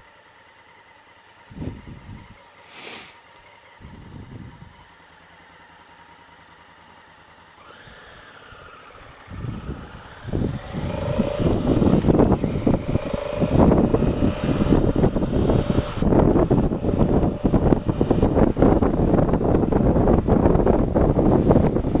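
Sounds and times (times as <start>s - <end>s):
motorcycle engine: 0.0s - 22.0s
wind noise on microphone: 1.5s - 2.4s, 3.8s - 4.8s, 9.2s - 22.0s.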